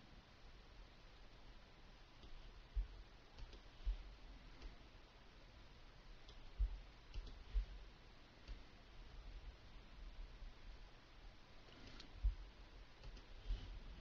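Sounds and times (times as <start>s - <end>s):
computer mouse clicking: 2.2s - 2.5s, 3.4s - 3.8s, 6.2s - 7.7s, 8.4s - 8.7s, 11.6s - 12.3s, 13.0s - 13.4s.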